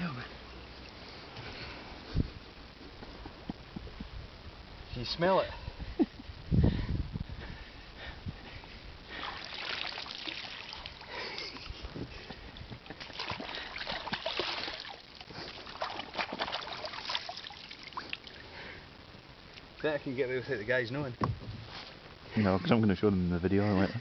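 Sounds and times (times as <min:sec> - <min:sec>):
shallow water splashing and dripping: 0:09.1 - 0:11.7, 0:12.8 - 0:18.4.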